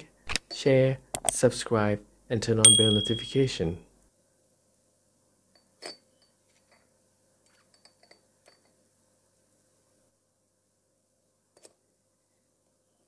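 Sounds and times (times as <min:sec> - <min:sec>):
metal tweezers clinking on glass: 0:02.7 - 0:03.4.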